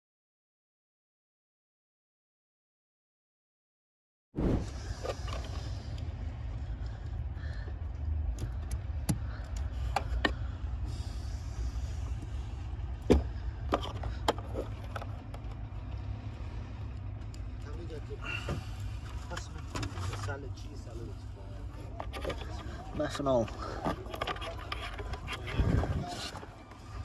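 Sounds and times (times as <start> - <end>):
steady low rumble: 4.4 - 27.0.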